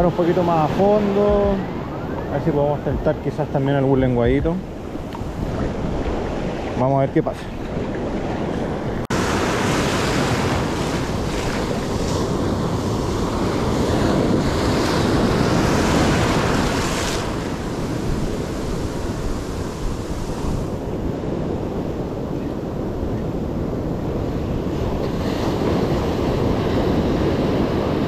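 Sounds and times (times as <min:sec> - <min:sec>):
wind buffeting microphone: 0:00.0 - 0:28.0
surf breaking on beach: 0:09.1 - 0:22.1.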